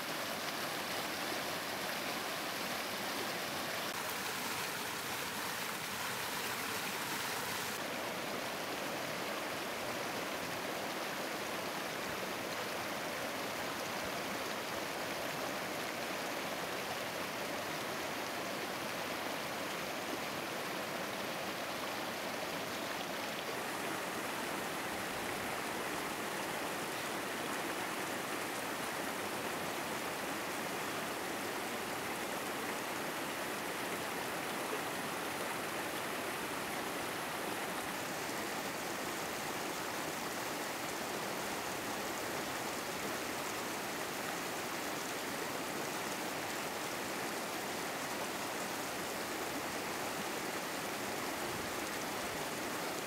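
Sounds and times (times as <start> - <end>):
flowing water rushing: 0.0 - 53.0.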